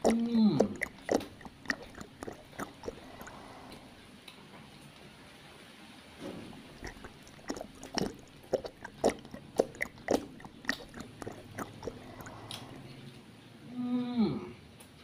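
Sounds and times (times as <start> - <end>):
wet lip smacks: 0.0 - 3.8, 6.5 - 13.0
open-mouthed chewing: 0.0 - 4.0, 6.4 - 13.1.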